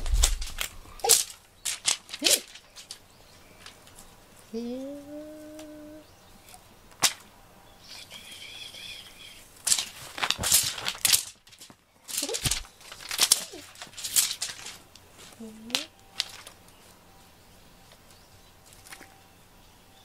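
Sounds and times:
cat paws scrabbling: 0:00.0 - 0:04.1, 0:09.4 - 0:16.7.

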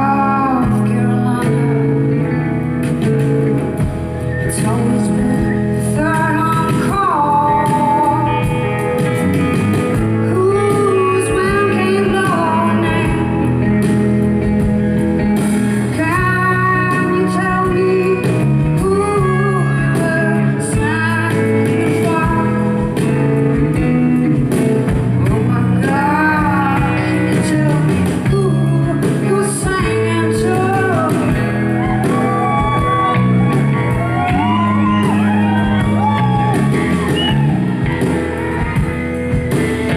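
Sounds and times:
woman singing: 0:00.0 - 0:02.6, 0:04.4 - 0:09.2, 0:09.9 - 0:14.0, 0:15.8 - 0:24.5, 0:25.1 - 0:36.3
band playing electric guitar: 0:00.0 - 0:39.9.

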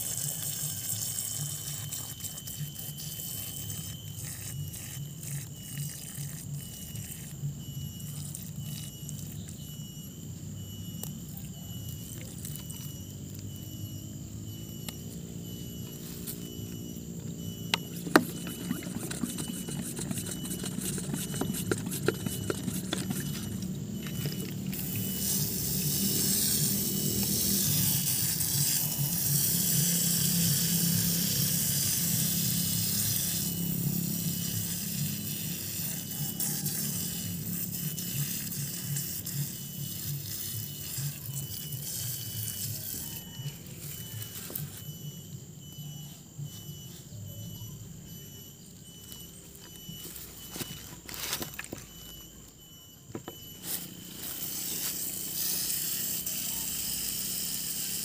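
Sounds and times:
water spray hissing: 0:17.8 - 0:43.2, 0:53.7 - 0:58.0.

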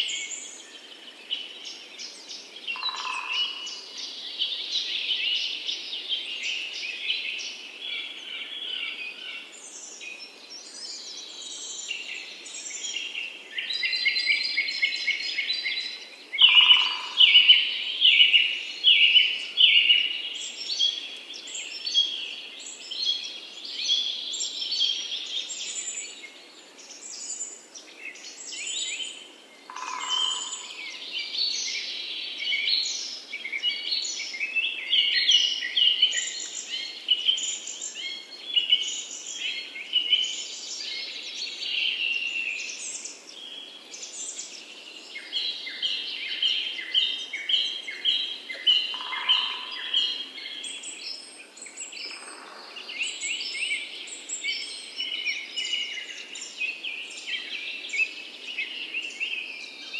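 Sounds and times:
birds chirping and singing: 0:00.0 - 0:59.9
repeated bird calls: 0:16.4 - 0:17.5, 0:29.7 - 0:31.0, 0:46.6 - 0:51.0.

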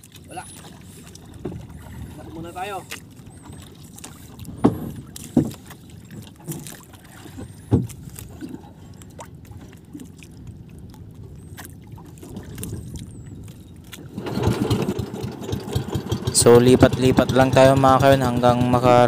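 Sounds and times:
water wash: 0:00.0 - 0:19.0
wind: 0:00.0 - 0:19.0
sharp knocks on boat: 0:04.5 - 0:06.8, 0:07.4 - 0:08.6.

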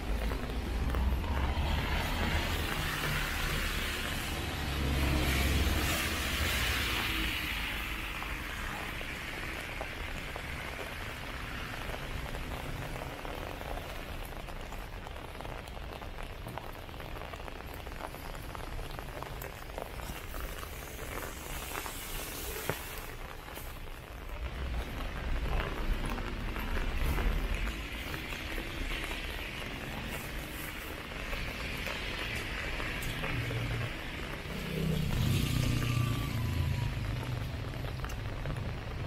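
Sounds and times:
rain pattering: 0:00.0 - 0:39.0
vehicle passing: 0:00.2 - 0:08.2, 0:24.5 - 0:38.9.

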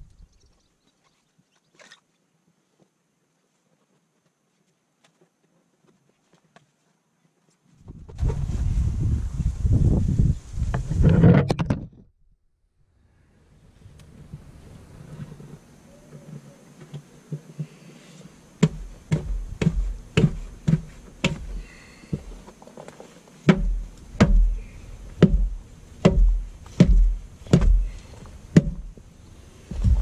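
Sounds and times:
sharp knocking blows: 0:23.5 - 0:28.0.

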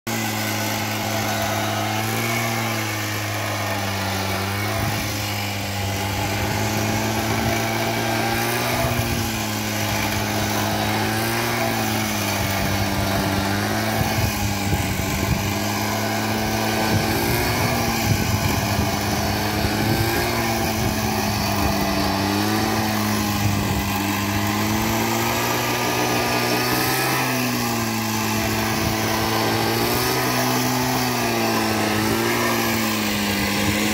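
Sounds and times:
small petrol engine running: 0:00.1 - 0:33.9.

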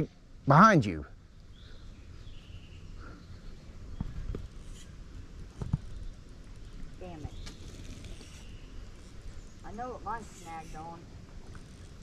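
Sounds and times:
faint bird chirps: 0:05.8 - 0:11.0.

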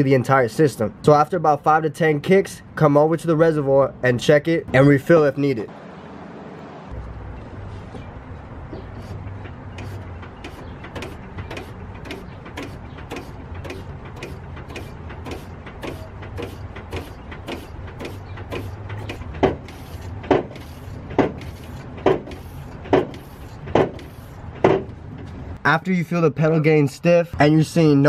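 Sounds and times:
hydraulic clicking: 0:08.7 - 0:25.4.

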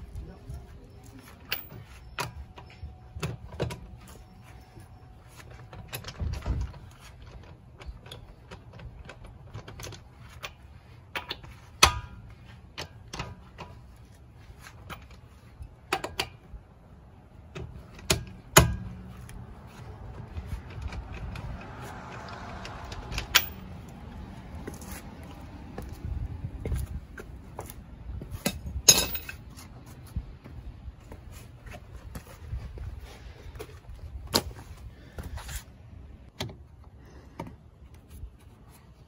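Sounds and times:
metal clanks: 0:17.5 - 0:24.0, 0:28.3 - 0:29.6.

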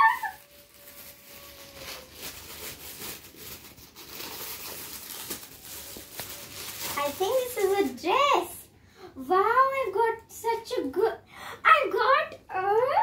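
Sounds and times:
foil gift wrap crinkling and tearing: 0:00.0 - 0:08.6.

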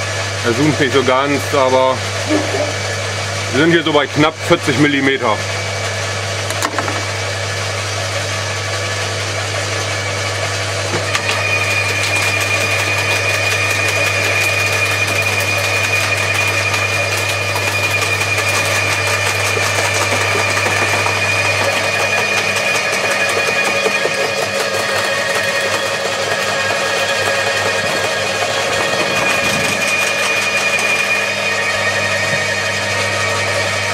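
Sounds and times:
garden shredder motor hum: 0:00.0 - 0:33.9
branches crackling in shredder: 0:11.1 - 0:31.8.

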